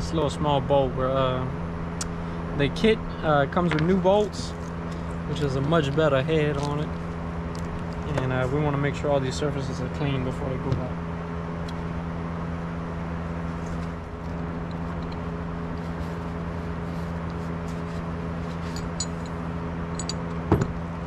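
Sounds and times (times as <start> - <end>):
mechanical hum: 0.0 - 21.0.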